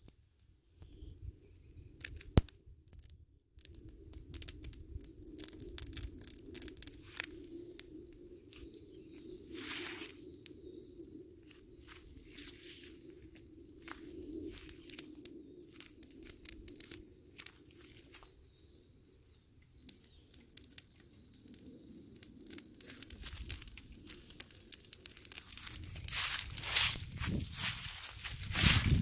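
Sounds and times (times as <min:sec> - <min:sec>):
dry leaves crackling in fire: 0:02.0 - 0:10.3, 0:12.0 - 0:18.1, 0:19.8 - 0:29.0
sharp pops of fire: 0:19.9 - 0:27.4.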